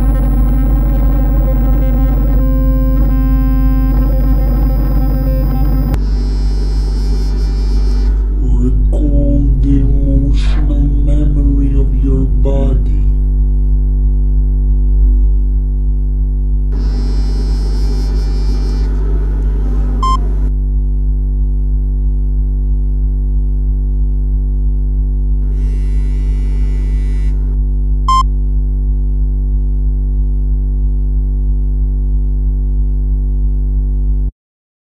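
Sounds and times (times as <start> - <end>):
deep synthesizer drone: 0.0 - 6.0.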